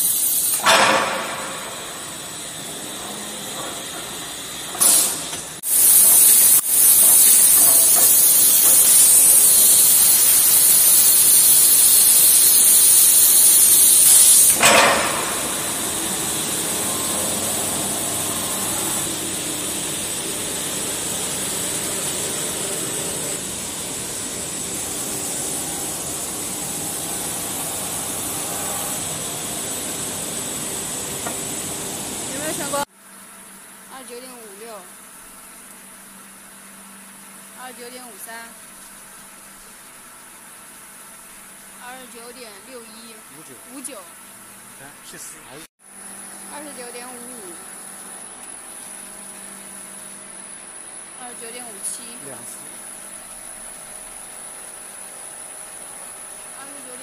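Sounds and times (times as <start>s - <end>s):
loud air hiss: 0.0s - 32.9s
sanding machine hum: 6.9s - 32.9s.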